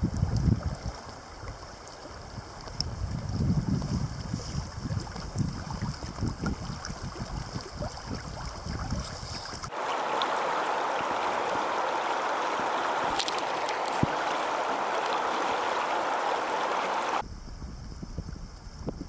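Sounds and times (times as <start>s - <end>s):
wind rumbling on microphone: 0.0s - 19.0s
river water rushing over gravel: 9.6s - 17.2s.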